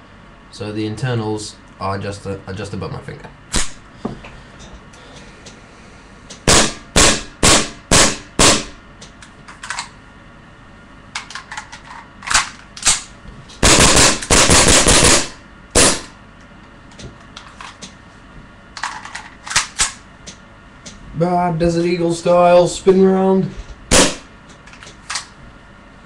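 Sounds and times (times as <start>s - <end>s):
airsoft pistol shots: 6.5s - 8.8s, 13.6s - 16.1s, 23.9s - 24.3s.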